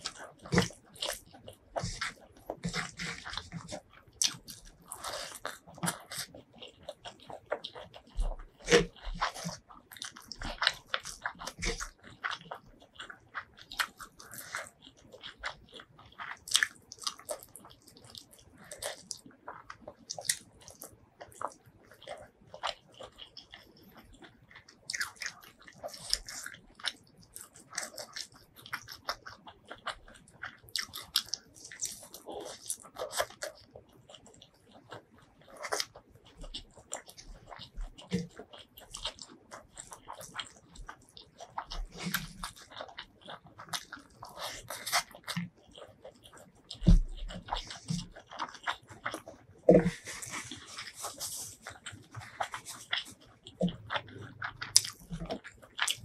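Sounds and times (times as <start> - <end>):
fingers squishing rice: 0.0 - 56.0
wet chewing and lip-smacking: 0.0 - 56.0.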